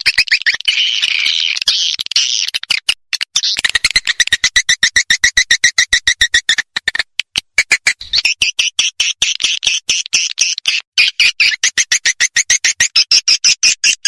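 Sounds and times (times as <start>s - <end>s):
rapid twittering bird chirps: 0.0s - 14.0s.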